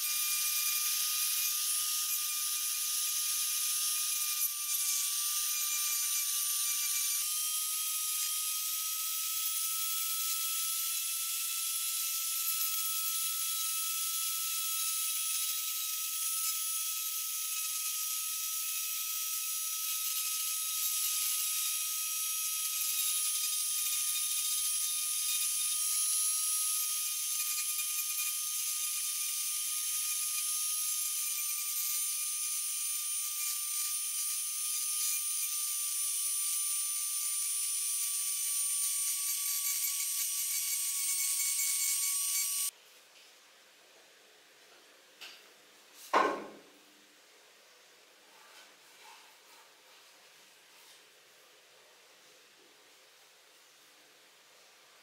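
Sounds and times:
rotary tool whine carving wood: 0.0s - 42.8s.

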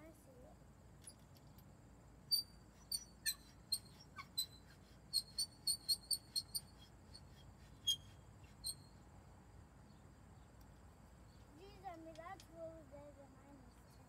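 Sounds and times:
high-pitched chirps: 2.3s - 9.0s.

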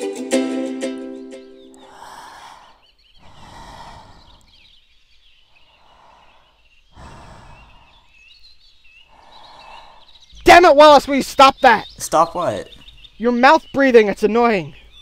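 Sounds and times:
person breathing through mouth: 1.8s - 4.8s, 5.5s - 8.4s, 9.0s - 10.4s.

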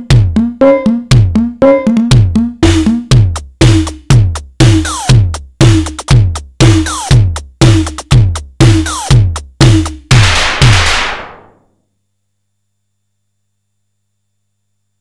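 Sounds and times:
electronic drum hits: 0.0s - 4.0s, 10.1s - 11.6s
noisy cymbal crash: 10.1s - 11.6s.

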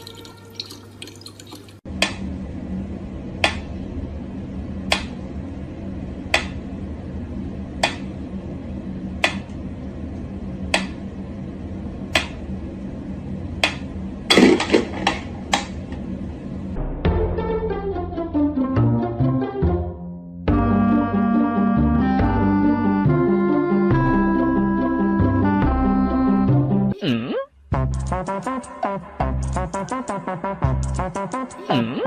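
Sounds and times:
faucet water running: 0.0s - 1.9s.

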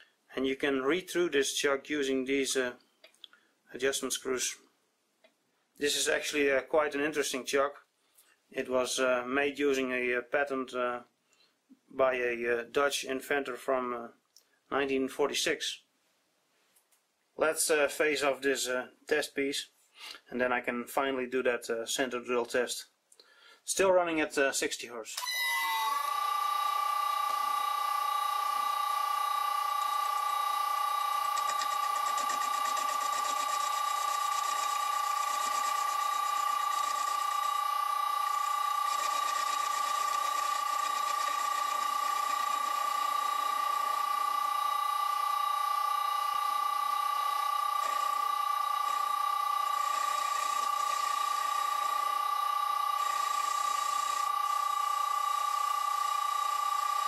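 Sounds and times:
lathe motor high-pitched whine: 25.2s - 57.0s.

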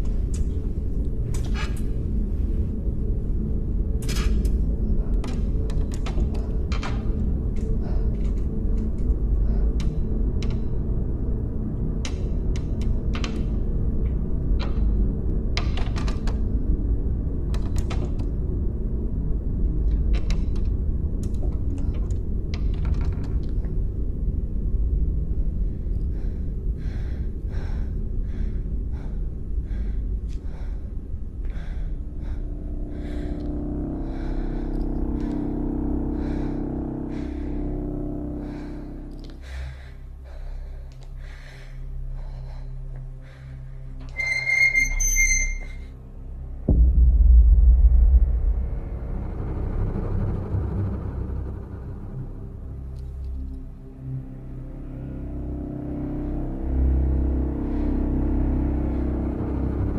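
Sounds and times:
low rumbling drone: 0.0s - 59.9s.

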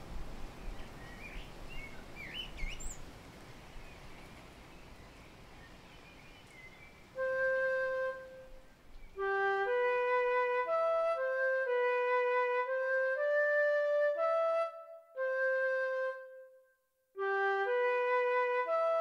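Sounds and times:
steady low hiss: 0.0s - 16.3s
birds chirping: 0.5s - 9.3s
woodwind melody: 7.2s - 19.0s.

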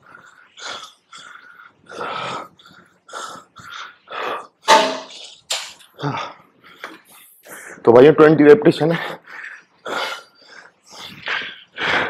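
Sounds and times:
man panting hard: 0.0s - 4.6s, 9.0s - 12.0s.

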